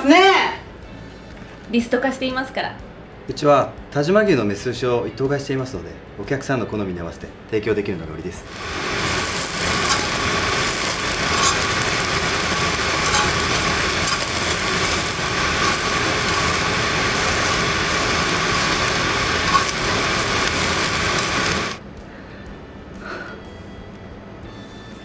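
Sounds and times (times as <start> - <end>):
fat crackling: 8.5 - 21.8
meat sizzling on a grill: 8.5 - 21.8.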